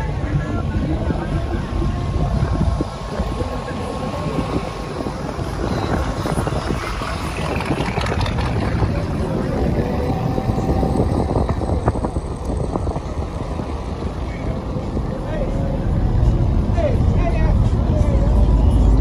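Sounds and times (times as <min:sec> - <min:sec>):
car engines and tyres rumbling: 0:00.0 - 0:19.0
wind buffeting microphone: 0:00.0 - 0:19.0.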